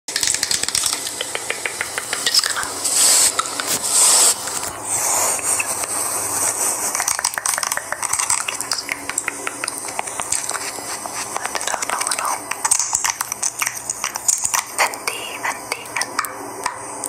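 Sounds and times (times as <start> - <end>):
rapid light clicks and taps: 0.1 - 2.7, 7.0 - 16.8
short hissing bursts: 1.2 - 7.2.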